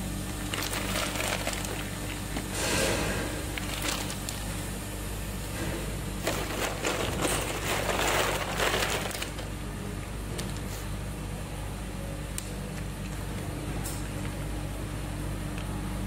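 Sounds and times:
ice clattering and crunching: 0:00.3 - 0:02.6, 0:03.4 - 0:04.6, 0:06.2 - 0:09.6.

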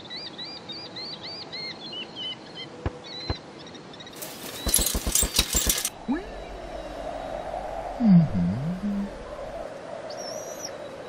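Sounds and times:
birds chirping: 0:00.0 - 0:07.4
rattling clicks: 0:04.2 - 0:05.9.

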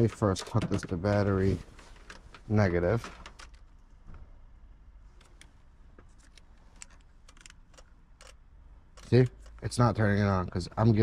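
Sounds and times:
clips and leads clicking and rattling: 0:00.0 - 0:03.8, 0:05.2 - 0:09.8.

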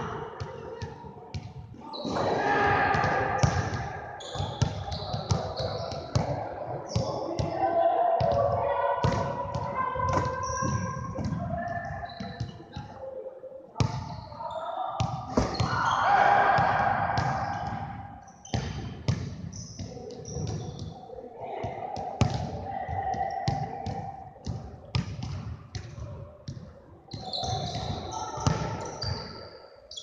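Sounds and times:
basketballs bouncing on wooden floor: 0:03.0 - 0:07.6, 0:16.6 - 0:20.9, 0:22.2 - 0:29.2.

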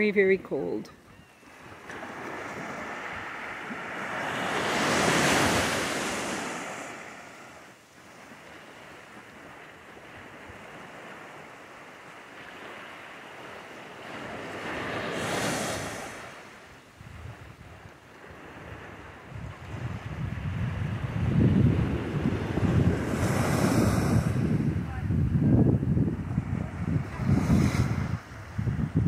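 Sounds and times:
waves breaking on beach: 0:01.4 - 0:29.0.

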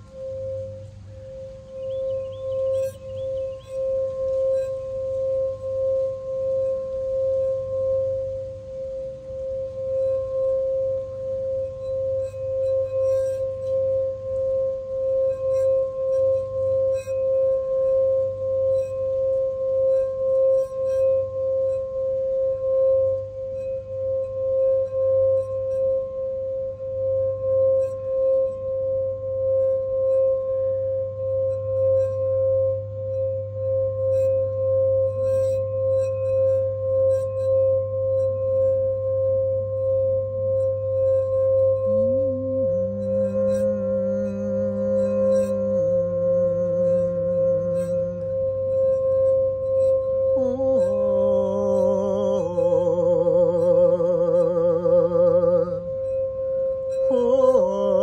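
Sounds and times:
faint bird chirps: 0:00.0 - 0:26.0
singing bowl tone: 0:00.0 - 0:58.0.

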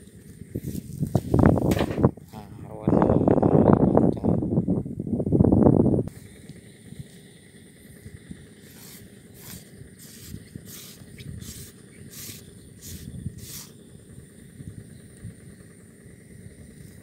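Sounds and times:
wind rumble on microphone: 0:00.1 - 0:06.1, 0:10.3 - 0:15.6.

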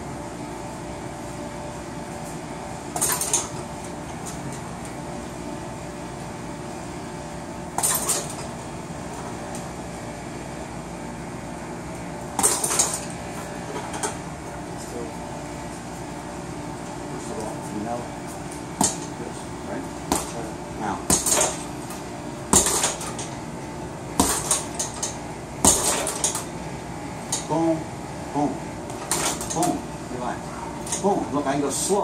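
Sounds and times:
punches striking heavy bag: 0:18.8 - 0:19.1, 0:20.0 - 0:20.4, 0:21.1 - 0:21.6, 0:22.5 - 0:23.0, 0:24.2 - 0:24.7, 0:25.6 - 0:26.2.

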